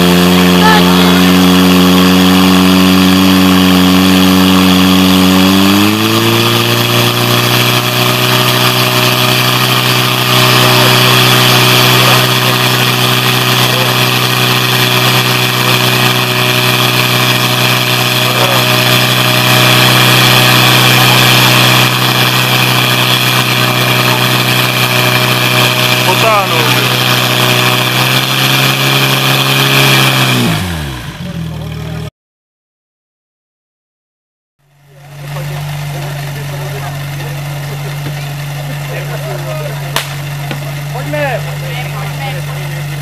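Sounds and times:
pump engine running hard: 0.0 - 32.1, 34.7 - 43.0.

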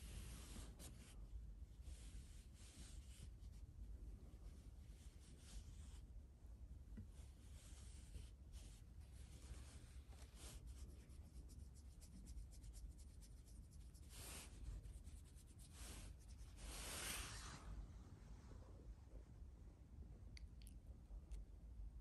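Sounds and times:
fingers scratching cat fur: 7.0 - 17.6.

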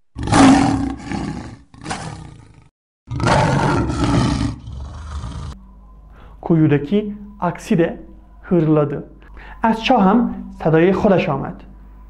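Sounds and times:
lion growling: 0.1 - 5.6.

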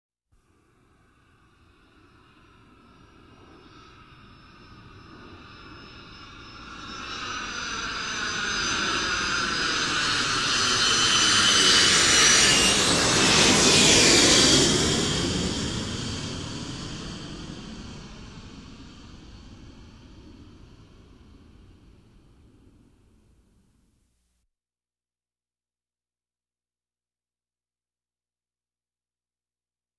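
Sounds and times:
jet aircraft flying overhead: 1.1 - 23.2.

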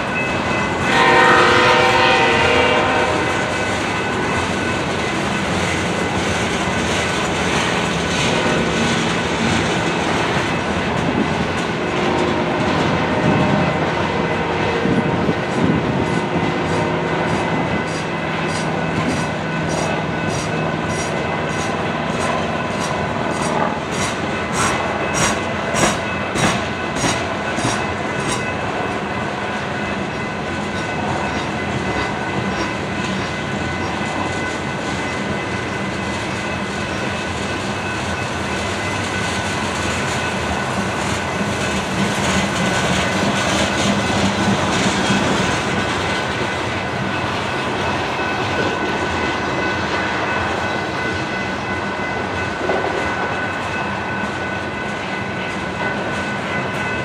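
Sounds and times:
train wheels clicking over rail joints: 3.5 - 14.1, 14.8 - 57.0
high squeal from train wheels: 14.8 - 28.6, 29.5 - 57.0.

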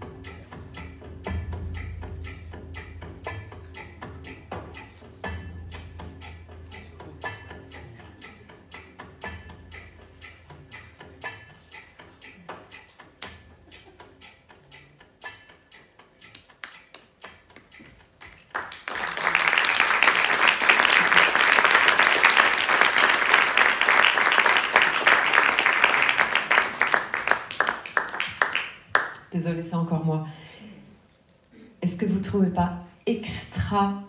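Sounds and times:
quiet ticking percussive music: 0.0 - 30.0, 31.9 - 34.0
audience applause: 18.5 - 29.2.

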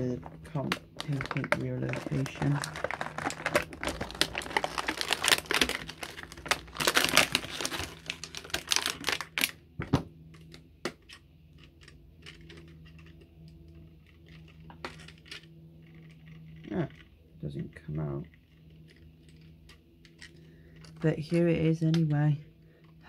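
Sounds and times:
plastic packaging crinkling: 0.0 - 9.6.

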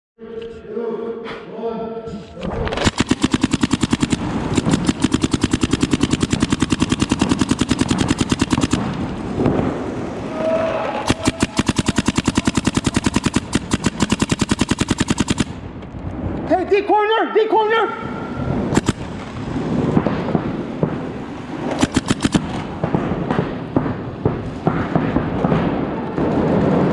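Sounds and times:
paintball markers firing: 2.7 - 9.6, 11.0 - 15.7, 18.7 - 19.4, 21.7 - 25.5.

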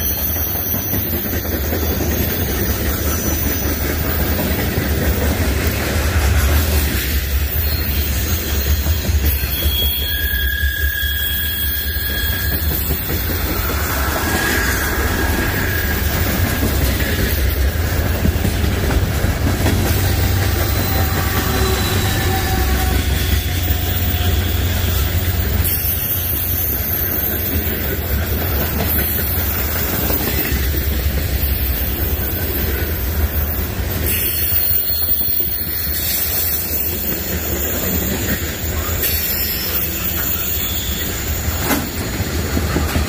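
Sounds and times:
train wheels rumbling on rails: 0.0 - 43.0
faint wheel squeals: 7.4 - 17.0, 34.0 - 41.6.

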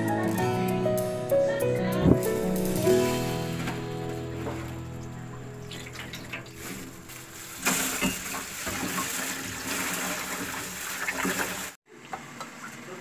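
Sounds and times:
water splashing rinsing rice: 2.8 - 11.8.

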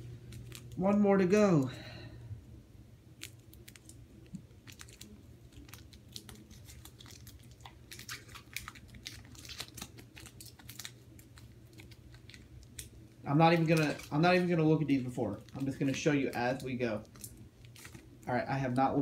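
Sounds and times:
foil pack crinkling and tearing: 0.2 - 0.9, 3.1 - 19.0.

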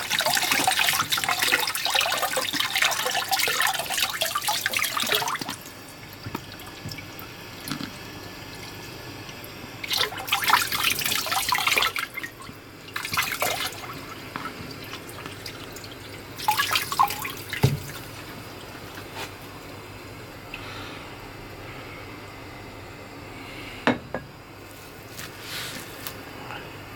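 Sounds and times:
tap water splashing: 0.0 - 8.0, 9.3 - 19.5.

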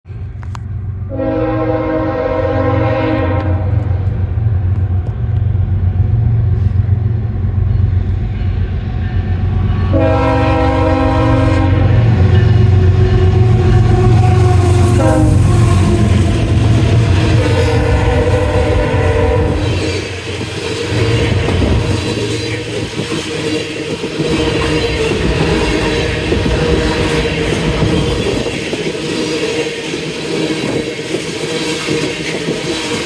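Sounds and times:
diesel locomotive rumble: 0.1 - 33.0
locomotive air horn: 1.1 - 4.0, 9.2 - 20.2.

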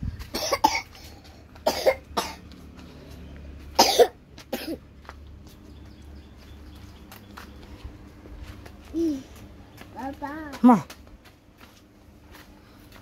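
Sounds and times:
person coughing: 0.3 - 2.4, 3.8 - 4.8.

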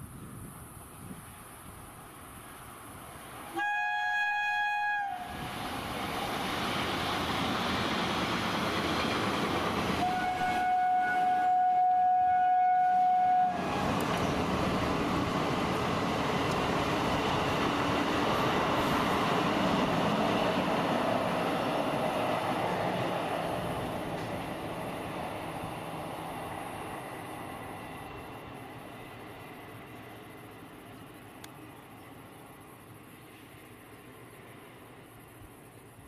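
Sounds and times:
train wheels on rails: 0.0 - 36.0
train horn blasts: 3.5 - 5.4, 10.0 - 13.7.

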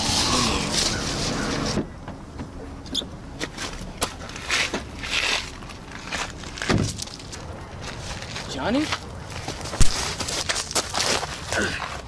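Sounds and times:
footsteps on gravel: 3.4 - 12.0
car door thump: 6.7 - 7.0.

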